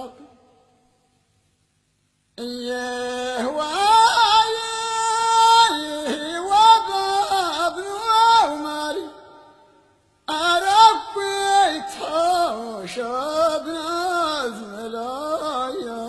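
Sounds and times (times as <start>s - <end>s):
person singing ornamented phrase: 2.4s - 9.5s, 10.3s - 16.0s.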